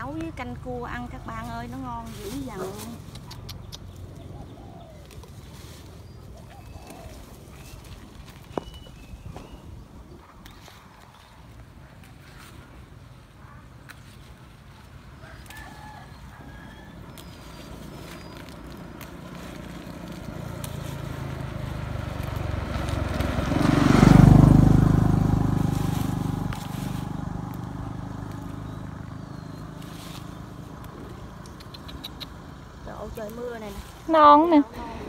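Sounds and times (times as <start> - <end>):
vehicle engine passing by: 14.0 - 35.0.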